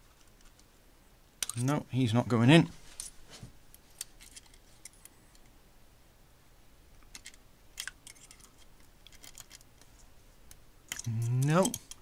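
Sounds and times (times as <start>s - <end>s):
metallic clicks and scrapes: 3.8s - 5.5s, 7.0s - 10.1s, 10.9s - 12.0s.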